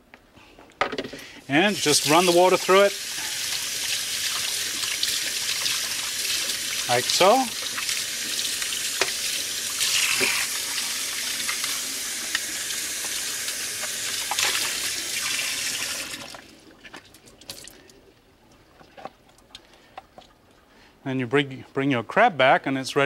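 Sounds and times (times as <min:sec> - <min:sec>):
tap running water into sink: 0:03.4 - 0:16.4.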